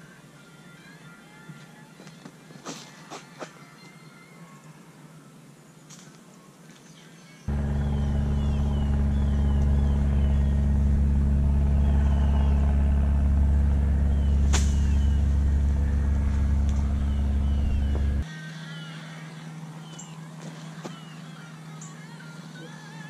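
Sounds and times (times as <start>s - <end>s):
birds chirping: 6.8s - 22.7s
loud low hum: 7.5s - 18.3s.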